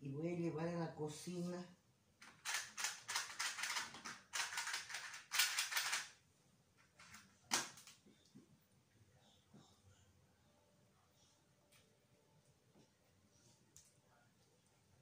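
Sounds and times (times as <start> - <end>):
toothpicks rattling in a box: 2.4 - 6.0.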